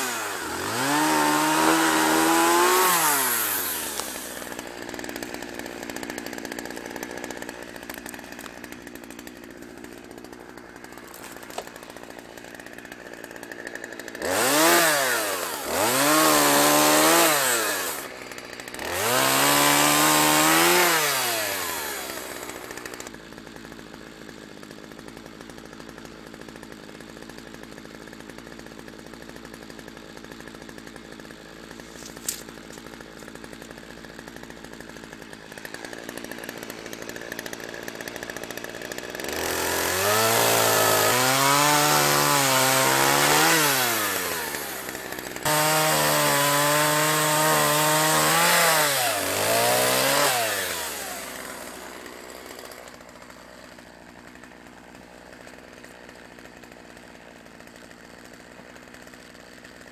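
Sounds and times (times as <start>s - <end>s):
chainsaw idling and revving: 0.0s - 59.9s.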